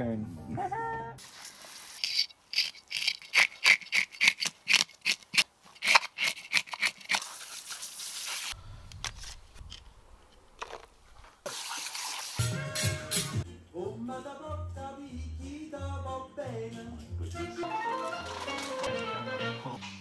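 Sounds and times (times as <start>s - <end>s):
sharp scraping clicks: 2.0s - 7.3s.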